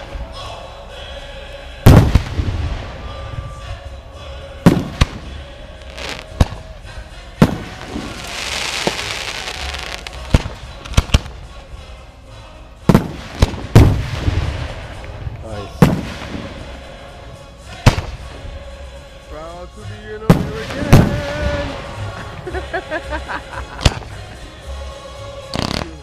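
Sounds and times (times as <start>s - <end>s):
hissing crackle of fireworks: 1.8s - 3.3s, 4.6s - 11.6s, 12.8s - 17.2s, 20.3s - 23.1s, 25.5s - 26.0s.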